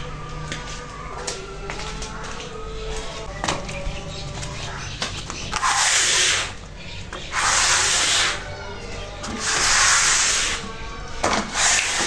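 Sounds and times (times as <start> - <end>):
floor cleaner swishing on concrete: 5.5 - 6.6, 7.2 - 8.5, 9.3 - 10.8, 11.4 - 12.0.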